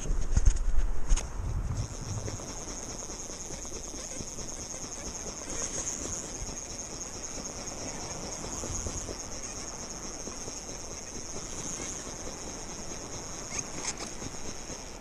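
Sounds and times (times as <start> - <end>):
steady high-pitched hiss: 0.0 - 15.0
wind: 0.0 - 15.0.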